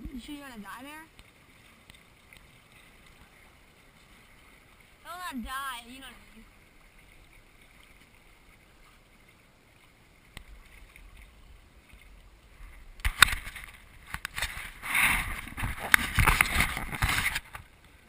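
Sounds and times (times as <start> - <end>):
water and wind noise: 0.0 - 18.0
hand rubbing camera microphone: 12.7 - 17.6.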